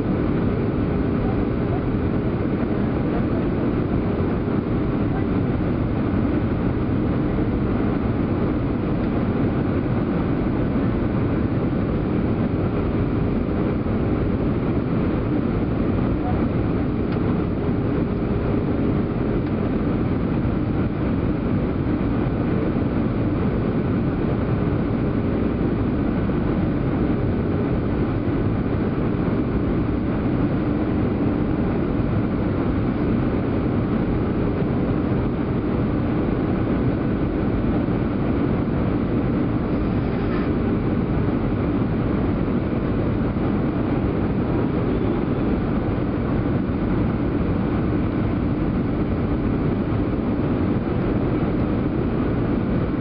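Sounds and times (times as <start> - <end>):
aircraft cabin engine and airflow rush: 0.0 - 53.0
faint steady hum: 0.0 - 53.0.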